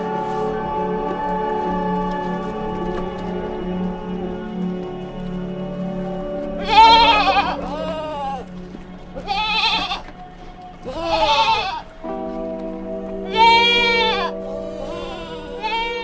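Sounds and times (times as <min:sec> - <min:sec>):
background music: 0:00.0 - 0:16.0
sheep bleating: 0:06.6 - 0:08.5, 0:09.2 - 0:10.2, 0:10.8 - 0:12.1, 0:13.2 - 0:16.0.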